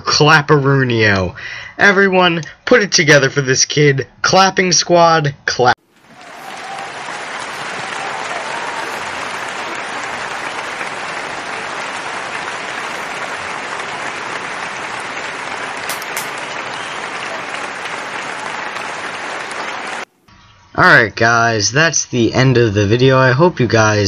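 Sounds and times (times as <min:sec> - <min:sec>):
crowd applause: 0:05.8 - 0:20.1.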